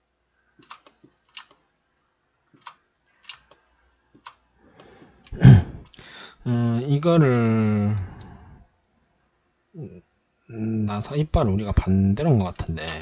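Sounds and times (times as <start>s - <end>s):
computer mouse and keyboard clicks: 0.6s - 1.6s, 2.5s - 6.0s, 12.4s - 13.0s.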